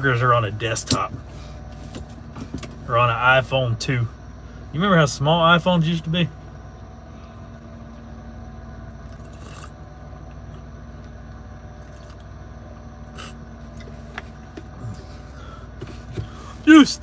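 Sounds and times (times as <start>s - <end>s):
vehicle cabin hum: 0.0s - 17.0s
man sipping from mug: 9.1s - 9.8s, 11.8s - 12.2s, 13.1s - 13.9s.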